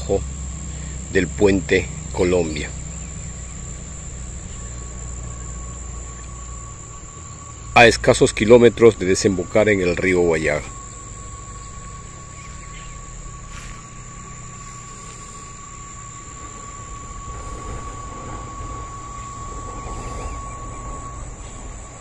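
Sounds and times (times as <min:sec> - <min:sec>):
high-pitched whine: 0:00.0 - 0:22.0
insects droning: 0:00.0 - 0:22.0
low steady tone: 0:00.0 - 0:22.0
low rumble: 0:09.2 - 0:22.0.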